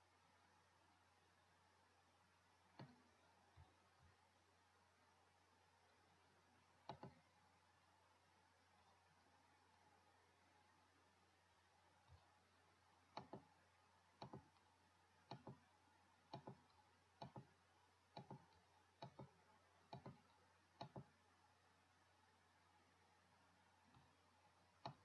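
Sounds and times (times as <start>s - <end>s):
computer mouse button clicking: 2.8s - 3.7s, 6.8s - 7.2s, 13.1s - 13.5s, 14.2s - 15.6s, 16.3s - 17.5s, 18.1s - 21.1s, 24.8s - 25.0s.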